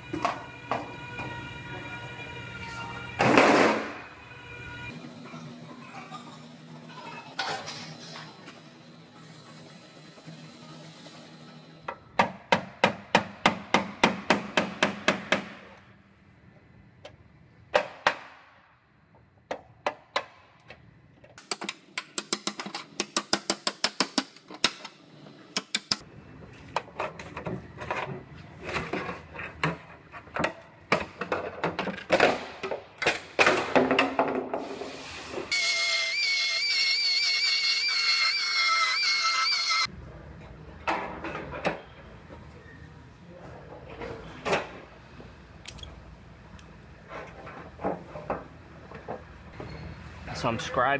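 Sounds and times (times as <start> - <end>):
power tool whining: 35.5 - 39.9.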